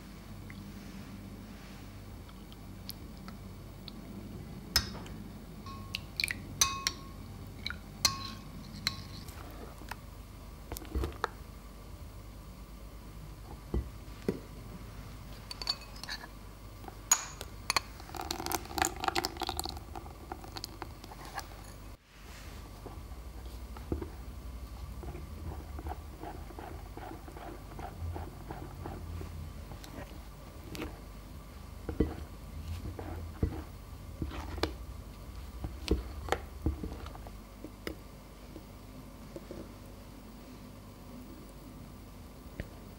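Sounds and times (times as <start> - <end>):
glassware clinking: 5.7 - 7.2, 8.0 - 9.2, 15.5 - 16.2
spatula tapping glass bowl: 5.7 - 7.2, 8.1 - 9.1
spatula against glass bowl: 8.0 - 9.3
juice pouring: 18.0 - 21.1
spatula squishing thick filling: 31.8 - 37.4.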